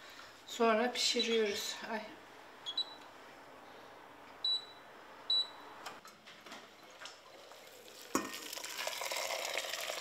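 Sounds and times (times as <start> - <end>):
touch control beep: 2.7 - 3.0, 4.4 - 5.6
water pouring into a pot: 7.2 - 10.0.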